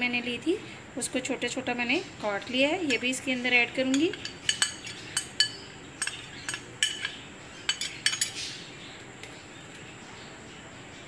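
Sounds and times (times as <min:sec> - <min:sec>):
steel spoon clinking on glass bowl: 0:03.9 - 0:08.4.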